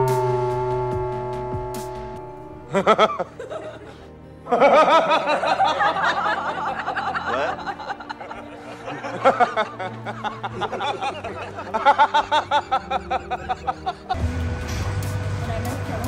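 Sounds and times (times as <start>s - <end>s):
men laughing heartily: 2.6s - 14.2s.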